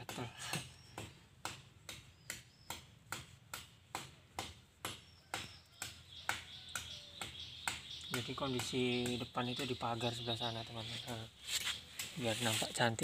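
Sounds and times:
rhythmic knocking: 0.1 - 10.3.

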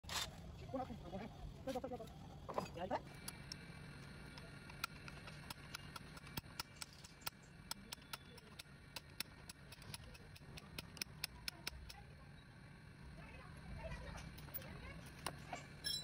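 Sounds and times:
faint low hum: 0.1 - 16.0
spanner clicking on bolt: 4.3 - 12.0.

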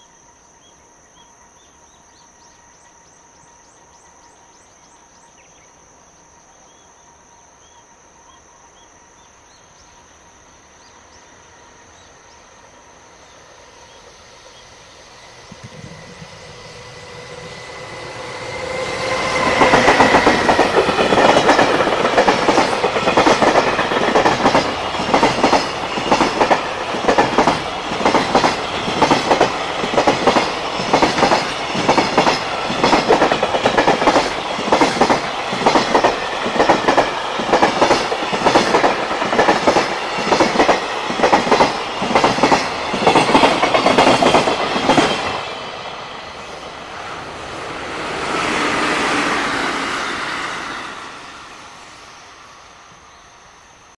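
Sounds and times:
electric locomotive passing: 0.0 - 53.9
train wheels clacking over rail joints: 18.1 - 45.6.

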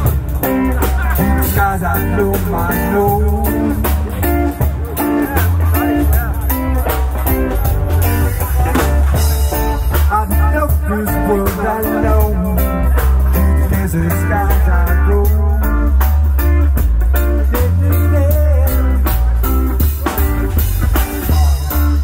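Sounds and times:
deep bass line: 0.0 - 22.0
drum kit: 0.0 - 22.0
electric guitar: 0.0 - 22.0.

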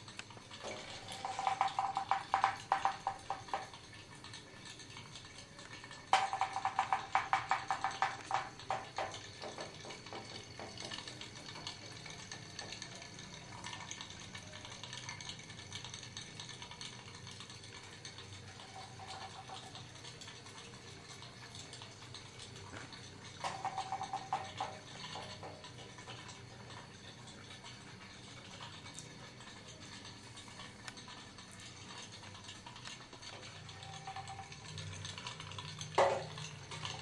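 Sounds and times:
toy boat engine popping: 0.0 - 37.0.

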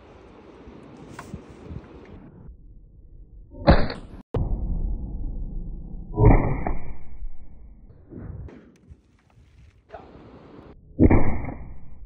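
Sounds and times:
rumbling echo: 2.5 - 8.8.

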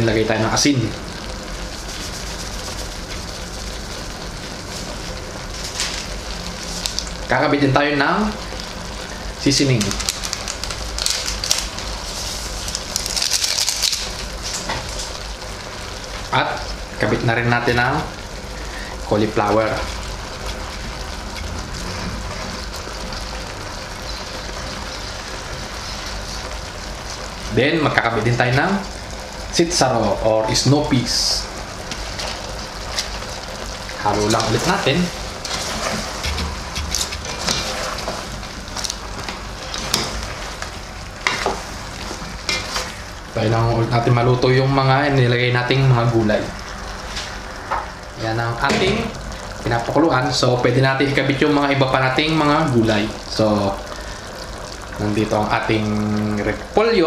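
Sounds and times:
food sizzling in a pan: 0.0 - 57.0
crisp rustle: 9.8 - 15.2, 32.0 - 40.7.

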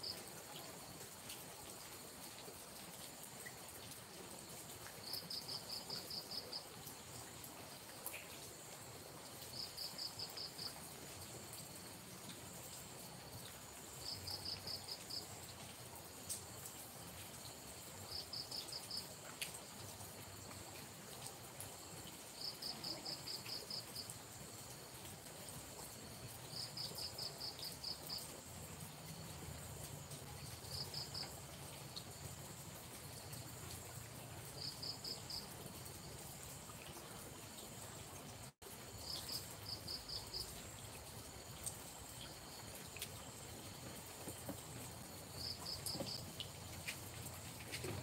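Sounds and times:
insect calling in rapid pulses: 45.1 - 46.9.

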